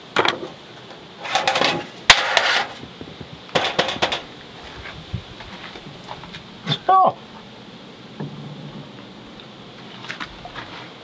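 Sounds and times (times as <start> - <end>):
metal and wood clattering: 1.2 - 4.3.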